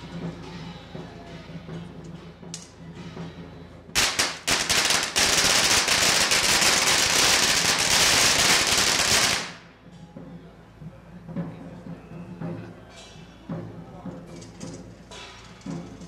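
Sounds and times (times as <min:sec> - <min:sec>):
firecrackers crackling: 0:03.9 - 0:09.7.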